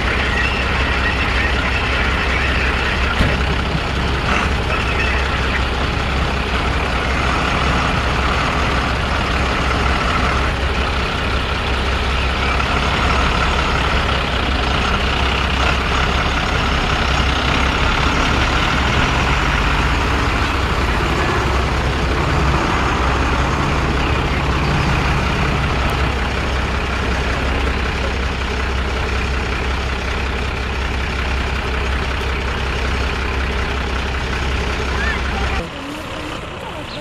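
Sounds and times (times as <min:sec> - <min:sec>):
truck engine driving past: 0:00.0 - 0:37.0.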